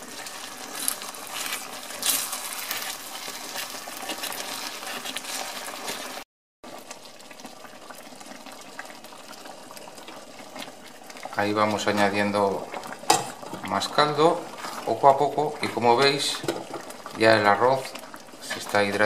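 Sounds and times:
wooden spoon scraping a pan: 0.0 - 6.2, 13.1 - 16.9
broth simmering: 0.0 - 19.0.

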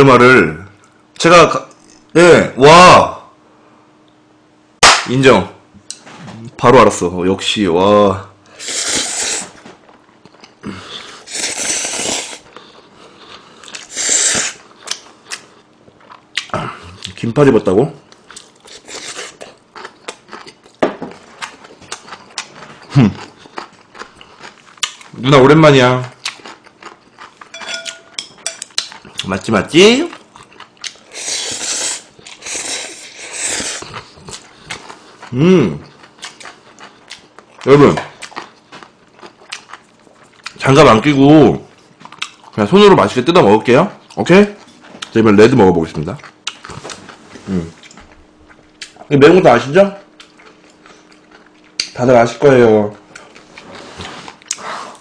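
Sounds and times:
noodles being slurped: 8.6 - 9.6, 11.0 - 14.6, 31.0 - 35.2.

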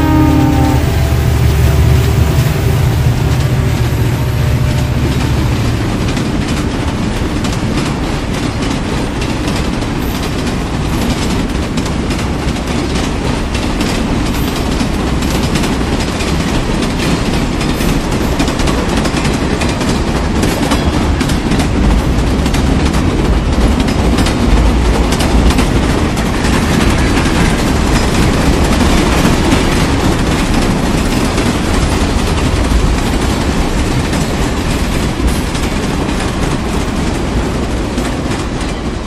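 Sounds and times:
low drone: 0.0 - 7.3
train wheels rumbling on rails: 0.0 - 39.0
wheels clattering over rail joints: 4.5 - 39.0.

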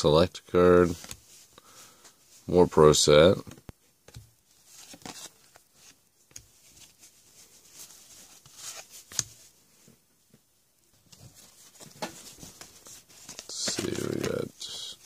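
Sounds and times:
trading cards flicking and sliding: 11.8 - 14.5.

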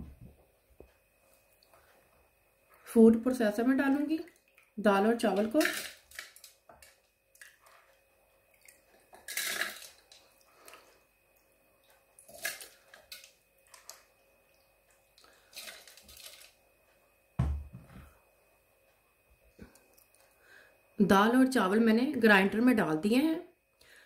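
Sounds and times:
dull thump: 17.4 - 18.1.

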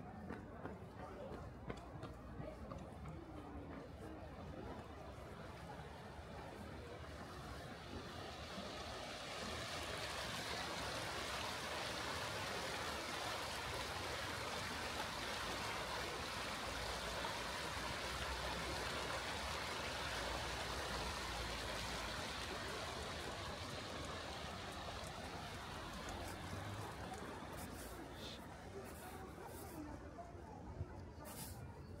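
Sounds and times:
flowing water rushing: 4.5 - 29.5.

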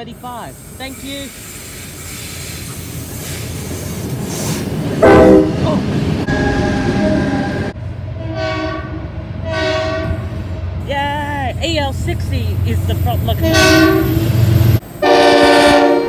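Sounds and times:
locomotive engine rumbling: 0.0 - 16.0
locomotive horn blasts: 5.0 - 5.6, 6.3 - 10.3, 13.4 - 14.2, 15.0 - 16.0.

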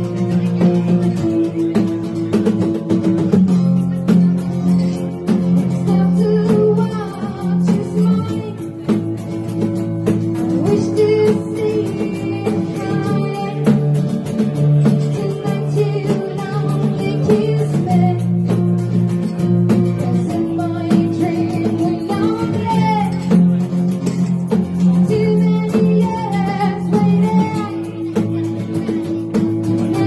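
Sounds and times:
strummed acoustic guitars: 0.0 - 30.0
woman singing: 5.6 - 9.1, 10.4 - 24.1, 24.7 - 30.0.

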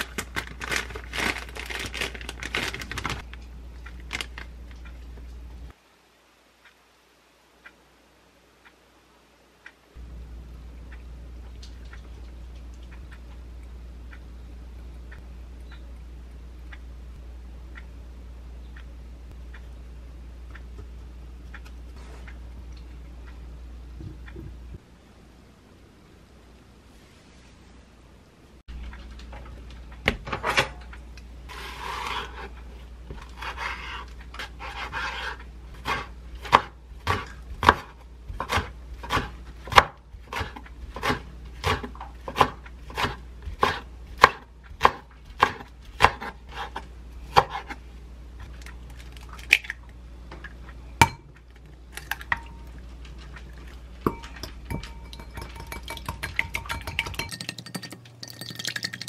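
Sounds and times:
knife chopping on wooden board: 34.6 - 47.8.

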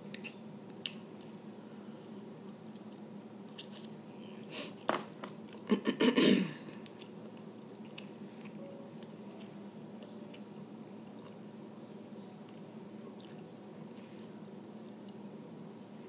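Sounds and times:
close-up chewing and mouth sounds: 0.0 - 4.0, 6.8 - 11.7, 12.5 - 15.7.

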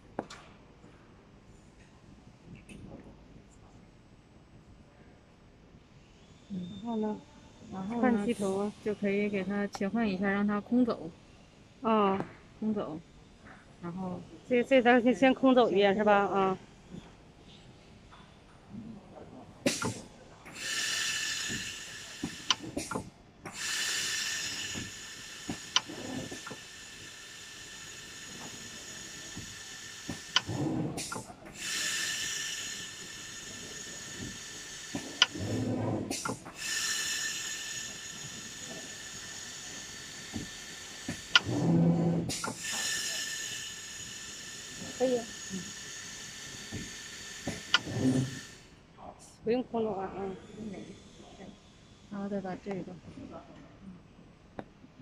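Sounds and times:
sewing machine whine with hiss: 6.0 - 9.6, 19.6 - 48.8.

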